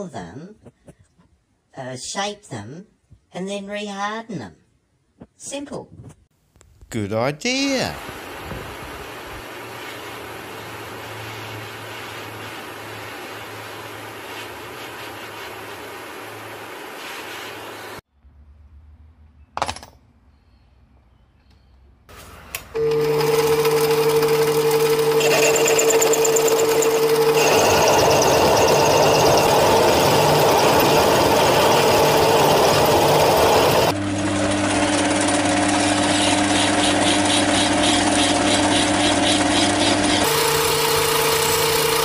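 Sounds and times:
mini lathe whining: 0:22.8 - 0:33.9, 0:34.9 - 0:42.0
rough cutting noise: 0:23.3 - 0:34.0
hand file rasping: 0:25.1 - 0:33.9.

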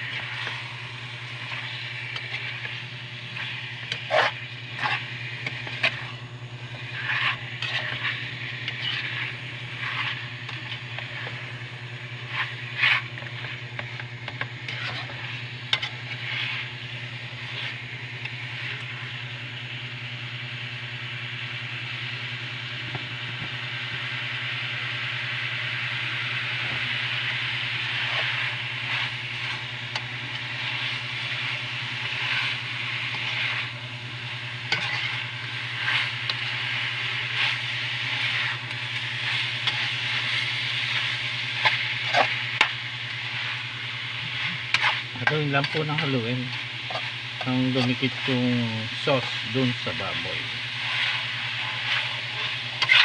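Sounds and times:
meat sizzling in a pan: 0:00.0 - 0:53.0
metal spoon scraping and clinking: 0:06.9 - 0:11.0, 0:34.7 - 0:36.5, 0:50.9 - 0:53.0.

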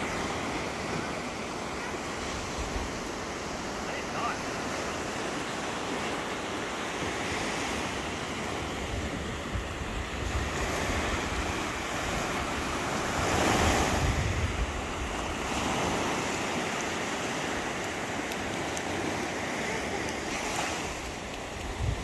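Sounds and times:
ocean surf breaking: 0:00.0 - 0:22.0
wind on microphone: 0:07.6 - 0:16.7, 0:19.9 - 0:22.0.

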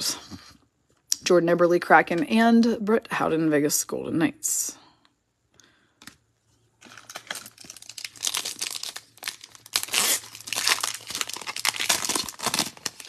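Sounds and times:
foil wrapper tearing and crinkling: 0:06.8 - 0:13.0.

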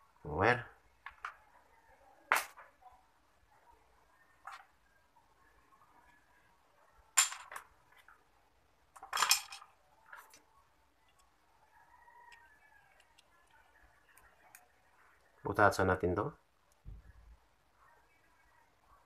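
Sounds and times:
plastic fan parts clacking: 0:08.9 - 0:10.4.

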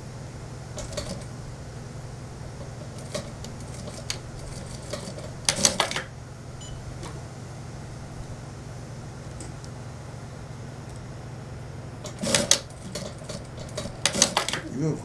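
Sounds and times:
steady low hum: 0:00.0 - 0:15.0
sewing machine clicks and knocks: 0:02.8 - 0:06.1, 0:12.0 - 0:14.6.

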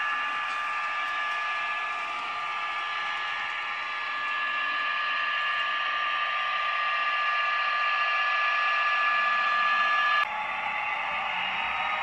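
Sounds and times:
model train running on track: 0:00.0 - 0:12.0.

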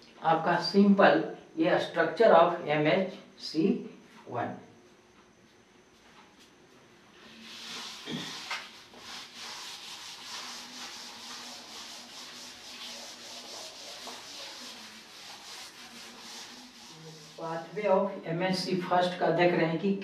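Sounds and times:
duster scrubbing a blackboard: 0:07.3 - 0:17.9.

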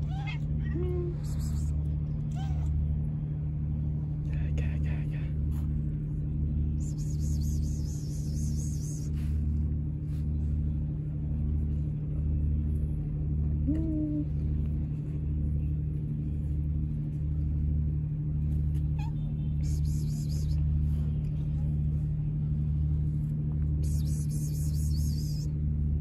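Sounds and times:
cat chirp: 0:00.0 - 0:01.7, 0:02.3 - 0:02.8, 0:18.9 - 0:20.4.

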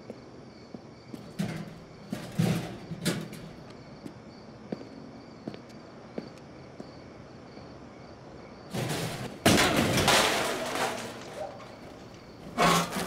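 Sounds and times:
faint cricket chirps: 0:00.0 - 0:13.0
metal trash can rattling: 0:01.2 - 0:03.6, 0:08.7 - 0:13.0
trash can crashing onto pavement: 0:01.2 - 0:03.6, 0:08.7 - 0:13.0.

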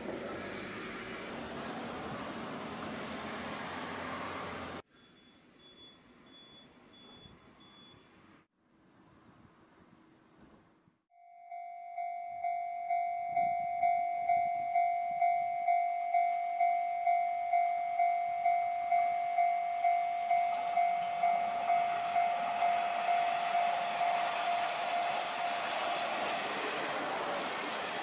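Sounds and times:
level crossing bell ringing: 0:11.2 - 0:25.7
train running noise: 0:18.9 - 0:28.0.

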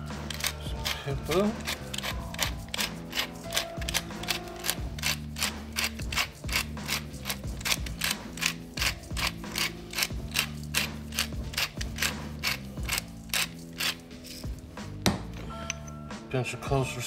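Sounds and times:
pepper mill ratcheting clicks: 0:00.1 - 0:14.6.

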